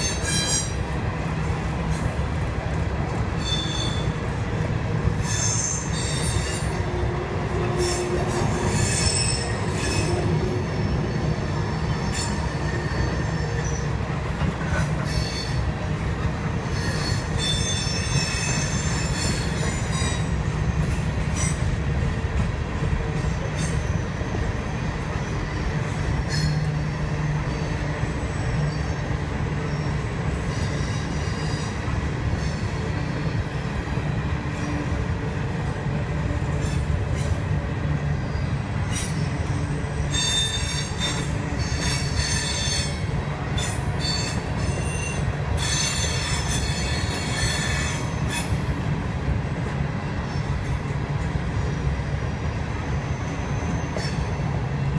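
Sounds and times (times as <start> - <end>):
steel wheels rumbling on rail: 0.0 - 54.9
high wheel squeal: 3.4 - 4.2, 7.6 - 13.9, 16.7 - 20.4, 38.3 - 48.6.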